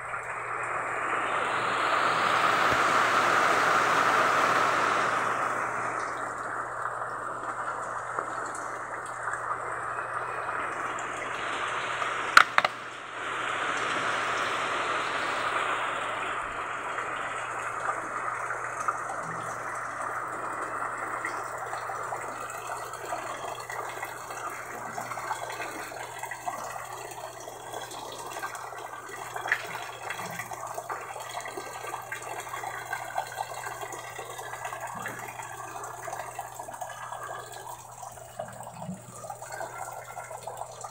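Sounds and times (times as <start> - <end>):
heavy rain on concrete: 0.0 - 40.9
sharp click: 12.4 - 12.8.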